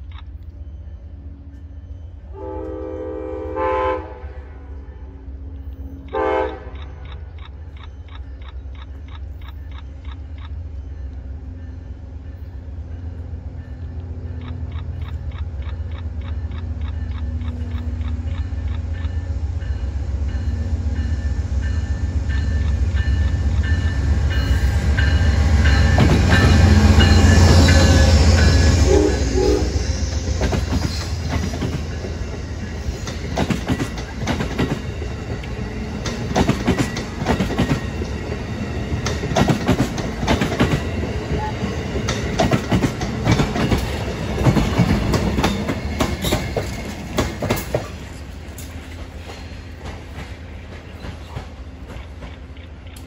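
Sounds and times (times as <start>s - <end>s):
train passing low rumble: 0.0s - 53.0s
wheels clattering on rails: 12.4s - 28.8s, 30.1s - 53.0s.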